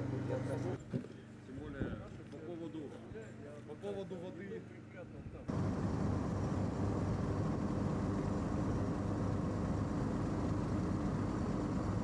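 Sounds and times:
vehicle engine running: 5.5s - 12.0s.

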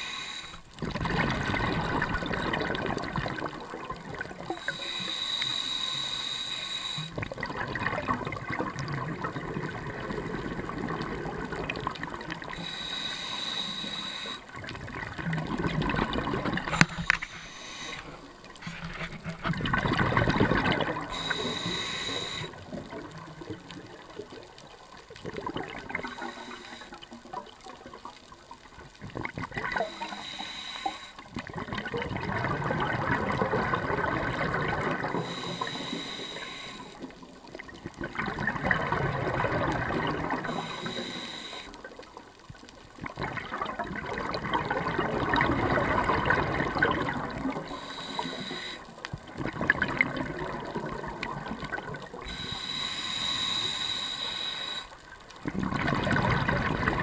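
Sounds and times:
hissing regulator inhalations: 0.0s - 0.8s, 4.4s - 7.2s, 12.4s - 14.6s, 16.7s - 19.2s, 20.2s - 22.6s, 25.9s - 27.2s, 29.7s - 31.3s, 34.3s - 37.3s, 40.4s - 41.9s, 47.6s - 49.0s, 52.2s - 55.1s
bubbling exhalations underwater: 0.8s - 4.8s, 14.6s - 17.0s, 18.6s - 21.5s, 31.3s - 35.8s, 37.2s - 40.9s, 43.0s - 48.0s, 49.2s - 52.5s, 55.4s - 57.0s.

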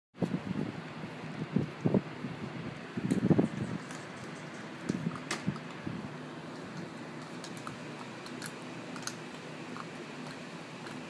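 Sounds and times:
steady low hum: 0.2s - 11.0s
puppies clicking and scratching: 3.1s - 11.0s.

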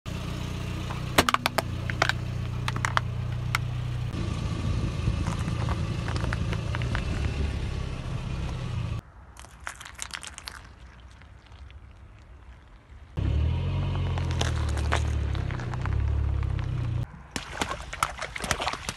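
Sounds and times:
car humming: 0.1s - 9.0s, 13.2s - 17.2s
plastic cracking under tyre: 0.9s - 3.7s, 5.2s - 7.4s, 14.1s - 16.8s
crackling and crunching: 5.2s - 7.4s, 9.3s - 13.2s, 13.8s - 17.6s.

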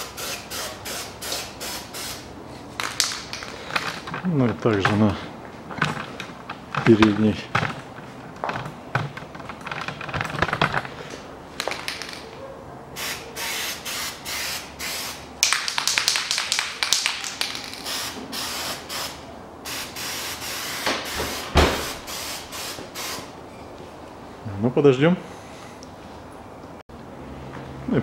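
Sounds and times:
aerosol spray hissing: 0.0s - 2.3s, 17.7s - 23.3s.

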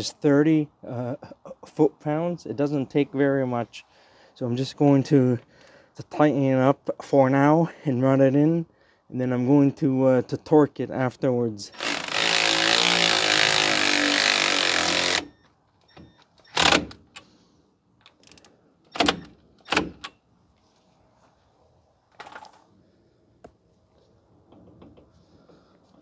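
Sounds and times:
power tool driving fastener: 11.7s - 15.4s, 16.4s - 17.3s.

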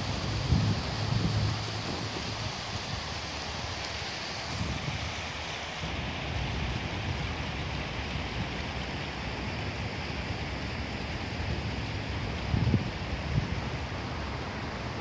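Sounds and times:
wind on microphone: 0.0s - 3.2s, 11.6s - 15.0s
fountain splashing into pool: 0.0s - 15.0s.

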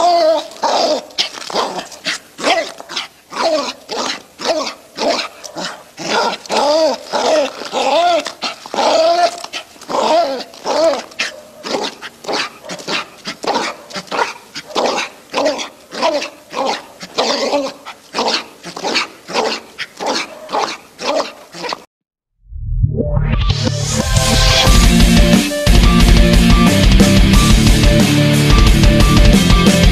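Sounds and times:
dog barking excitedly: 0.0s - 21.9s.

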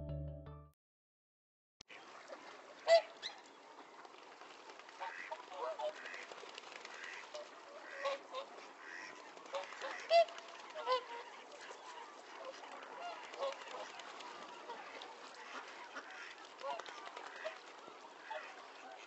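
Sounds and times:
wildfowl flock honking: 7.8s - 10.3s.

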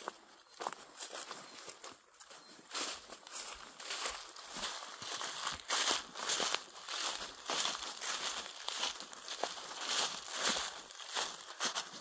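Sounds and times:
footsteps on forest floor: 0.0s - 12.0s.

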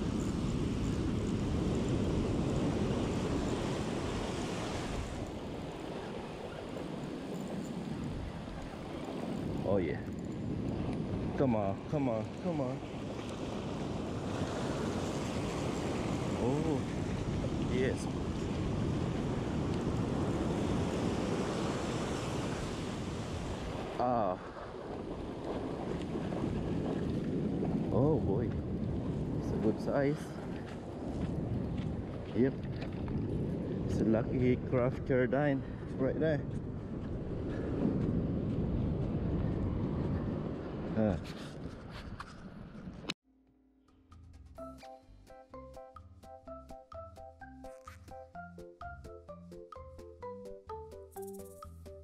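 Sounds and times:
wind buffeting microphone: 0.0s - 43.2s
ocean surf breaking: 1.5s - 9.9s, 11.2s - 28.2s.

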